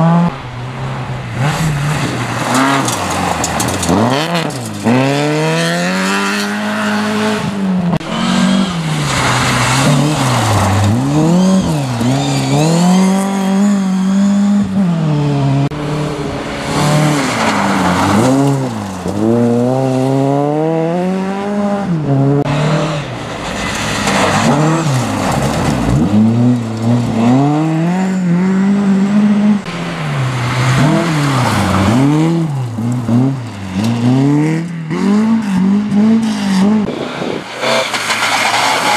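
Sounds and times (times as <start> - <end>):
rally car engines revving: 0.0 - 38.9
tyres spraying gravel: 8.3 - 13.7, 22.6 - 27.6, 36.9 - 38.9.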